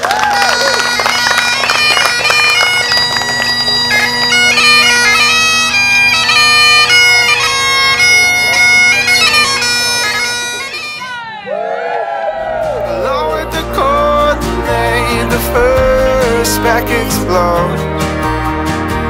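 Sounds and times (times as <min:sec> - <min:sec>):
people clapping and cheering: 0:00.0 - 0:05.4, 0:10.5 - 0:14.3, 0:17.6 - 0:19.0
bagpipes playing a tune: 0:00.0 - 0:11.2.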